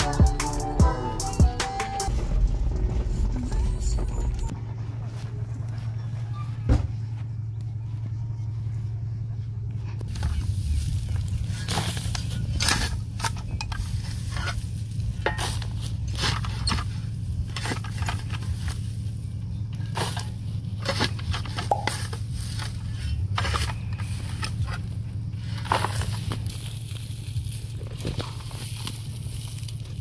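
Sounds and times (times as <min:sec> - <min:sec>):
steady low rumble: 0:00.2 - 0:30.0
spade chopping into dry soil: 0:11.5 - 0:16.9.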